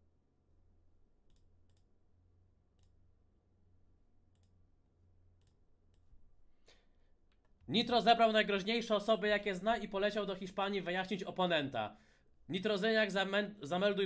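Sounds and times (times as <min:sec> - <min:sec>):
computer mouse clicks: 0:01.2 - 0:01.9, 0:02.7 - 0:03.0, 0:04.3 - 0:04.6, 0:05.4 - 0:06.1.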